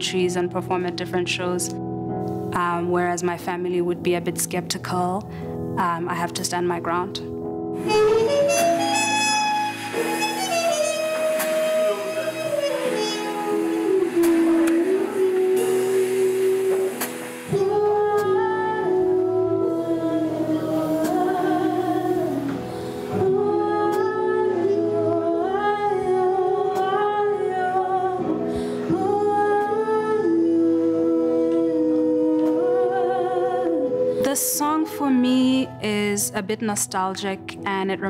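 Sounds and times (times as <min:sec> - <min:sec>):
double bass: 0:07.8 - 0:15.6
trumpet: 0:07.8 - 0:16.1
woman singing into microphone: 0:10.7 - 0:38.0.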